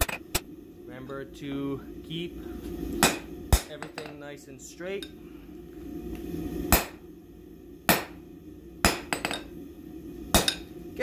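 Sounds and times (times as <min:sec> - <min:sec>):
steady low hum: 0:00.0 - 0:11.0
hammer striking steel on anvil: 0:03.0 - 0:04.2, 0:06.7 - 0:07.0, 0:07.9 - 0:08.2, 0:08.8 - 0:09.5, 0:10.3 - 0:10.7.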